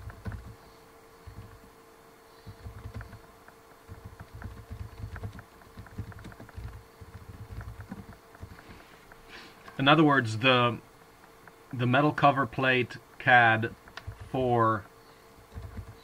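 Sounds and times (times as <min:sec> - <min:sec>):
computer keyboard typing: 0:00.0 - 0:00.6, 0:01.3 - 0:01.6, 0:02.5 - 0:03.3, 0:03.9 - 0:08.7, 0:15.5 - 0:16.0
faint steady hum: 0:00.0 - 0:16.0.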